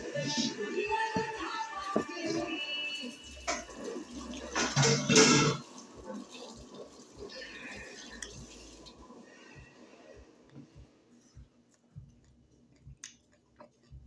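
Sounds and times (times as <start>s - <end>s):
wet chewing clicks: 11.5s - 14.0s.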